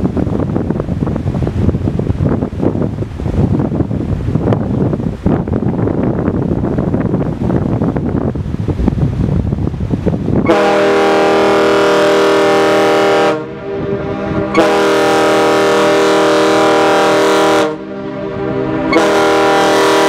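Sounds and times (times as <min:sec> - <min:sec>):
wind on microphone: 0:00.0 - 0:20.0
ship's horn blasts: 0:10.4 - 0:20.0.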